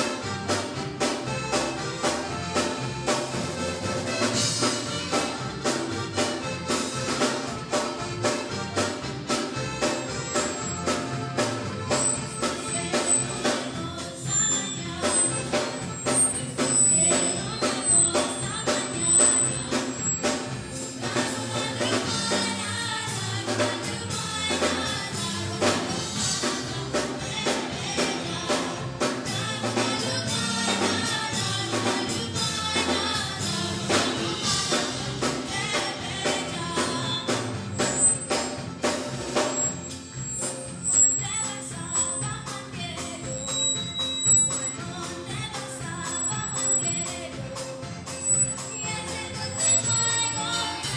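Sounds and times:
live band playing: 0.0s - 50.9s
person singing: 9.3s - 38.7s, 40.9s - 50.9s.

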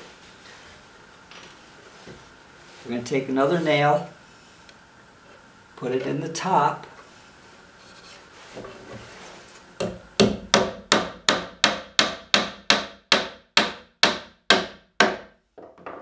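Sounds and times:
hammer driving nail into wood: 9.8s - 15.3s.

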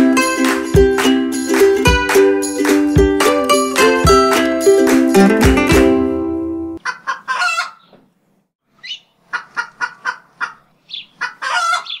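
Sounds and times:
chicken clucking: 6.8s - 8.0s, 8.8s - 12.0s.

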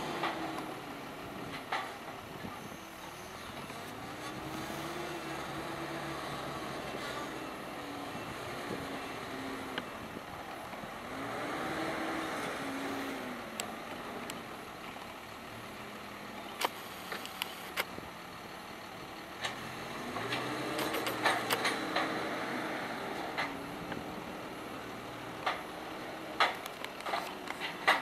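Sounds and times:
diesel engine running: 0.0s - 28.0s
sharp clicks and knocks: 20.2s - 22.2s, 25.4s - 25.8s, 26.4s - 28.0s.

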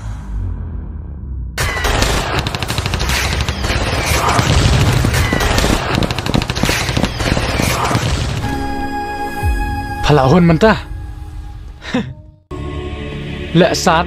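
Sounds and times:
rapid automatic gunfire: 1.6s - 8.4s.

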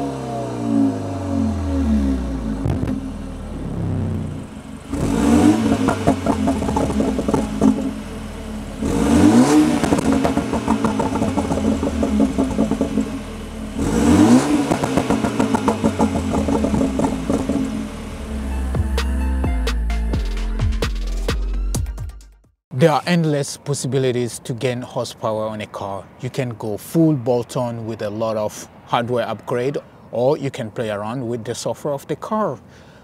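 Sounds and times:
car engine idling and revving: 0.0s - 21.6s.

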